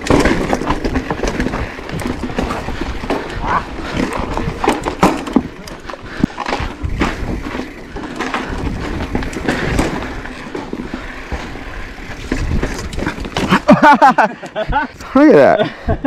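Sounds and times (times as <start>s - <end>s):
bike frame rattling: 0.0s - 15.5s
wind rumble on microphone: 11.3s - 13.4s.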